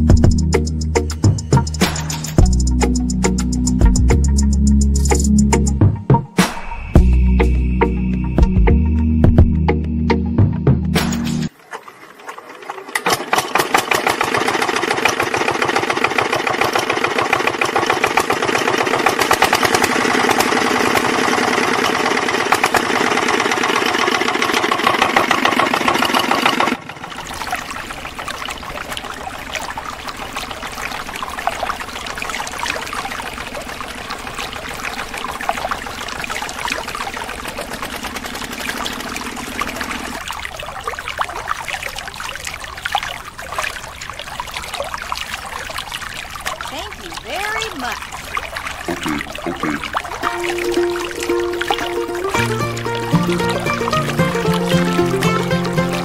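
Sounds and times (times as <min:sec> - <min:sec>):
water trickling: 0:11.4 - 0:56.0
water pouring into channel: 0:11.5 - 0:56.0.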